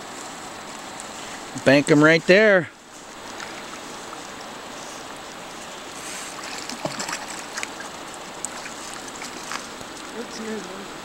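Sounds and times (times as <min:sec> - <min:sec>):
river water rushing: 0:00.0 - 0:11.0
fish thrashing and splashing: 0:03.0 - 0:10.4.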